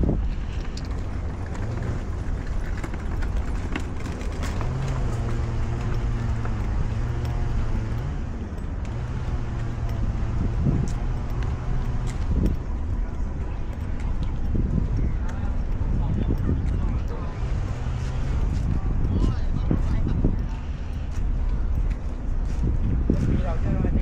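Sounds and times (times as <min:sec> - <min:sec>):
engine humming: 0:00.0 - 0:24.0.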